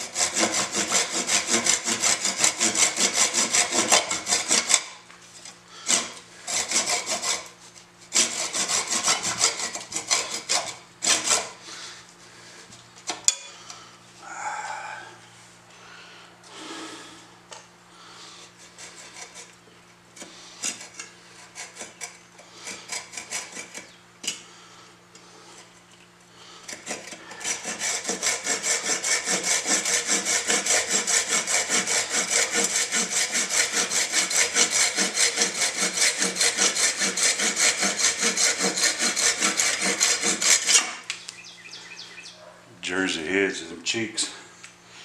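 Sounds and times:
hand saw cutting wood: 0.0s - 11.8s, 18.4s - 24.6s, 26.4s - 41.1s.

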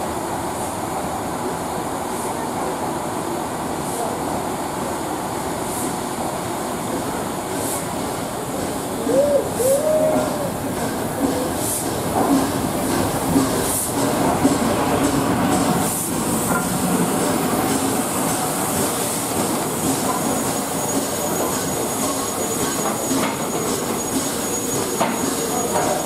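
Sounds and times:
steam locomotive wheels rolling: 6.8s - 26.0s.

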